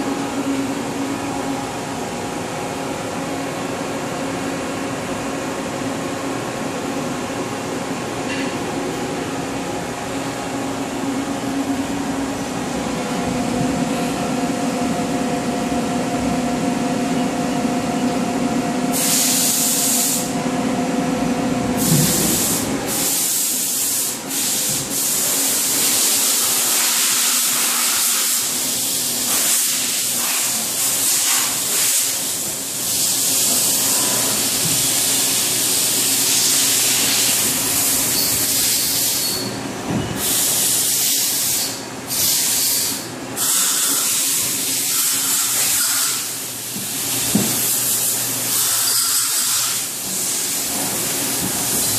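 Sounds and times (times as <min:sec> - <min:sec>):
low hum of machinery: 0:00.0 - 0:51.9
loud hiss: 0:18.9 - 0:20.3.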